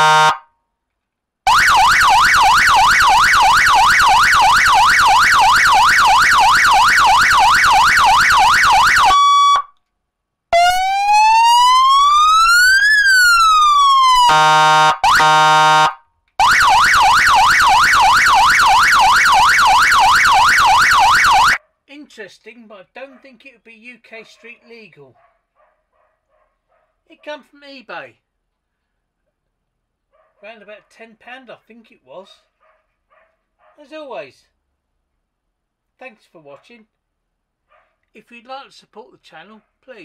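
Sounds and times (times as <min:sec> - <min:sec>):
electronic siren yelping and wailing: 0:00.0 - 0:00.4, 0:01.5 - 0:09.8, 0:10.6 - 0:21.6
horn-like siren blasts: 0:00.0 - 0:00.5, 0:01.5 - 0:09.7, 0:10.6 - 0:21.6.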